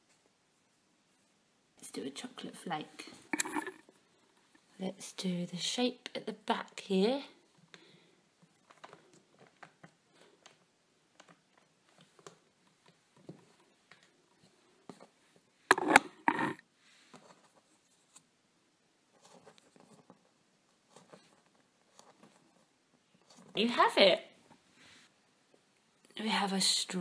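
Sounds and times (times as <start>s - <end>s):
plastic tools tapping and clicking: 3.3s - 3.8s, 15.7s - 16.6s.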